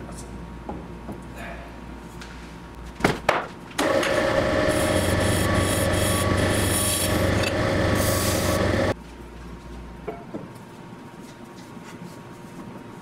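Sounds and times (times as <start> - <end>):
hum: 3.8 - 9.0.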